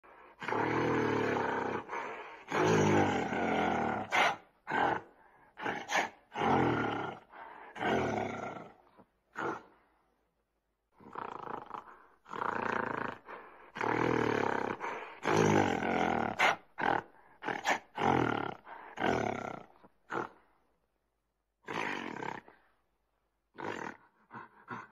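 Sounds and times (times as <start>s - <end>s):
large animal roaring: 0.4s - 5.0s.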